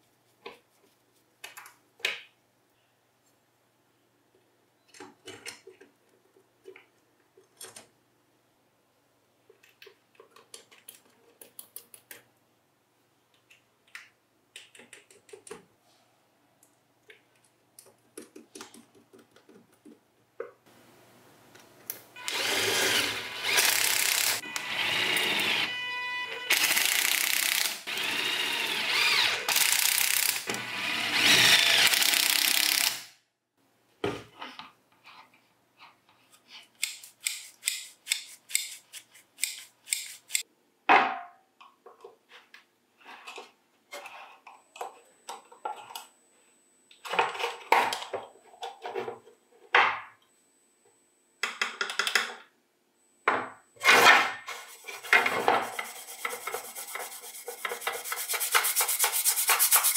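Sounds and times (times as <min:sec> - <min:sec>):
small power tool running: 0:22.2 - 0:25.7, 0:26.5 - 0:33.0.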